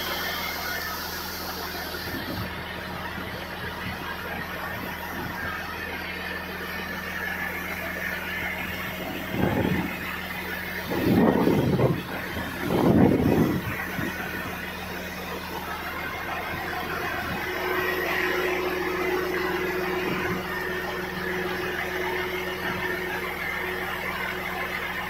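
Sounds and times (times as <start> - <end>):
engine hum: 0.0 - 25.0
high steady tone: 6.6 - 25.0.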